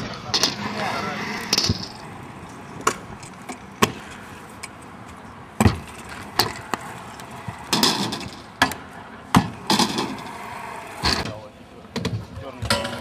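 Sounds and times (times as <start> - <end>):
scooter wheels rolling on concrete: 0.0 - 13.0
scooter deck clacking on ground: 5.6 - 8.8, 12.0 - 13.0.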